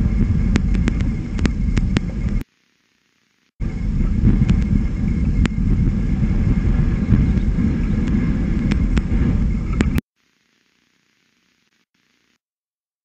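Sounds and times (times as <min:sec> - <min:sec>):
wind buffeting microphone: 0:00.0 - 0:02.4, 0:03.6 - 0:10.0.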